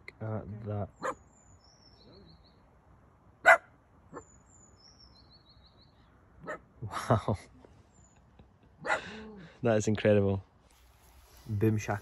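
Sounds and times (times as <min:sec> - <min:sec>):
small birds singing: 0:00.0 - 0:10.1
dog barking: 0:01.0 - 0:01.2, 0:03.4 - 0:04.3, 0:06.4 - 0:06.7, 0:08.8 - 0:09.1
dog yelping: 0:03.4 - 0:04.3.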